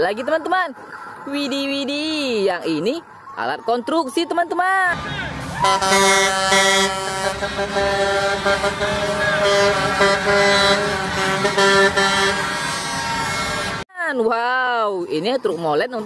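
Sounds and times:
truck engines passing: 0:04.8 - 0:13.8
truck air horn: 0:05.3 - 0:13.8.

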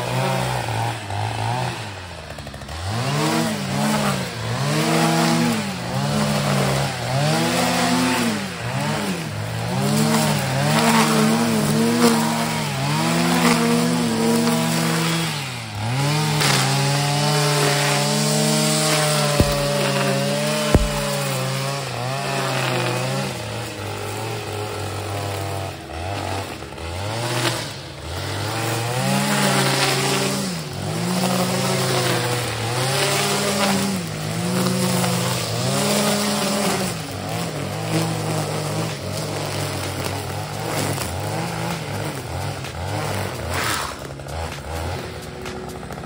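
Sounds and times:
brushcutter trimming weeds: 0:00.0 - 0:46.0.

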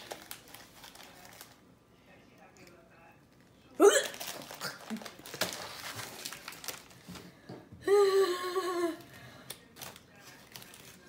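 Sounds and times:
foil packet crinkling: 0:00.0 - 0:01.6, 0:03.3 - 0:07.2, 0:09.0 - 0:11.0.

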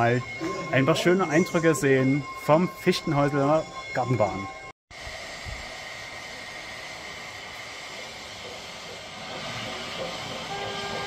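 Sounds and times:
model train running on track: 0:00.0 - 0:04.4, 0:05.0 - 0:11.0.

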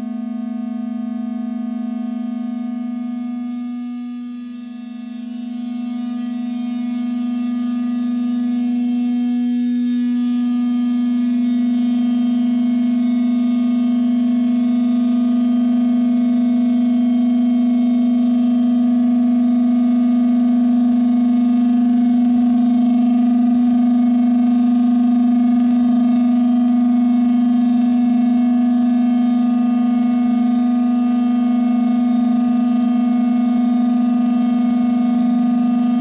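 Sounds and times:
synth drone with reverb: 0:00.0 - 0:36.0
faint flickering crackle: 0:20.6 - 0:30.9.

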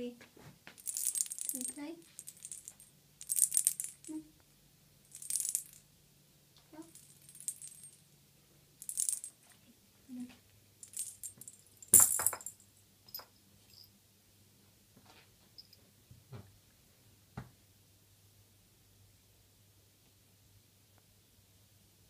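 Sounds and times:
cat toy jingling: 0:00.8 - 0:04.2.

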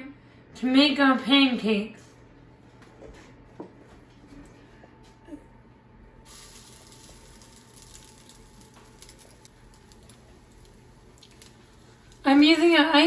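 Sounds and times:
batter sizzling in hot oil: 0:06.3 - 0:12.4.

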